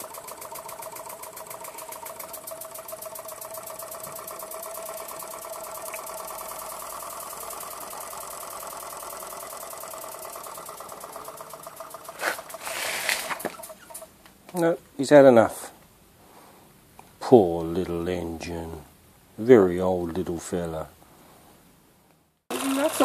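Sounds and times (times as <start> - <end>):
toy steam engine chuffing: 0.0 - 14.1, 22.5 - 23.0.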